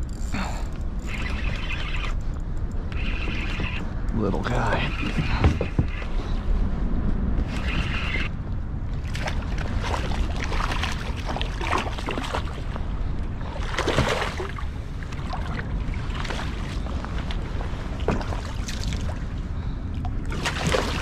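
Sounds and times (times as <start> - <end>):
water lapping around kayak: 0.0 - 21.0
wind buffeting microphone: 0.0 - 21.0
small splashes and knocks: 13.6 - 19.2, 20.0 - 21.0.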